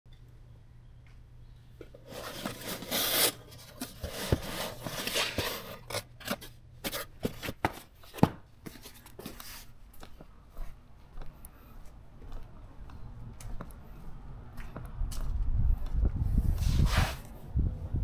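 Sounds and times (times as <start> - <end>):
cardboard box scraping slide: 2.1 - 5.8, 16.6 - 17.3.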